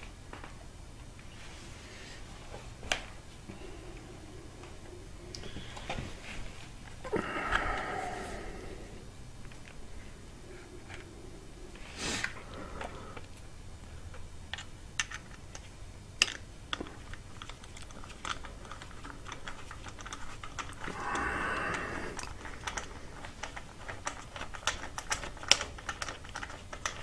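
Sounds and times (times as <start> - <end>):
small metal parts clicking: 14.5 - 21.3, 22.2 - 27.0.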